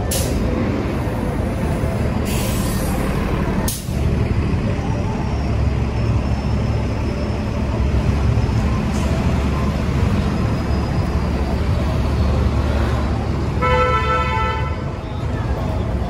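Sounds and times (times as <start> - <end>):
traffic rumble: 0.0 - 16.0
vehicle horn honk: 13.6 - 14.9.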